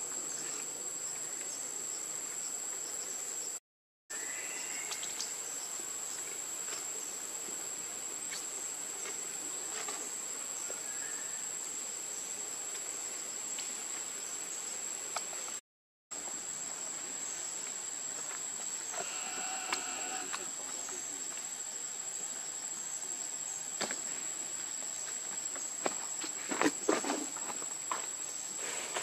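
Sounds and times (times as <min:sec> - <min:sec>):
faint outdoor hiss: 0:00.0 - 0:29.0
insects calling high-pitched: 0:04.1 - 0:06.2, 0:10.6 - 0:11.6, 0:18.6 - 0:21.6.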